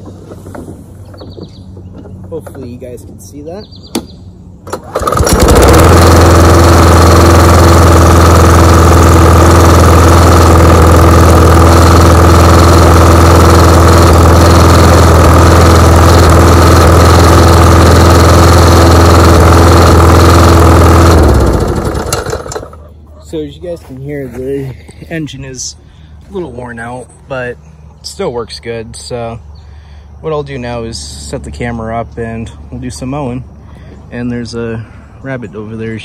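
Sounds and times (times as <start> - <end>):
lawn mower engine running: 3.9 - 27.5.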